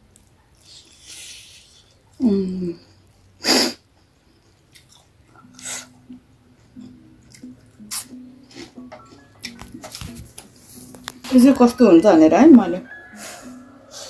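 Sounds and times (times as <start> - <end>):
quiet chewing: 0.0 - 2.2, 2.8 - 11.3
sharp burst of breath: 3.4 - 3.8.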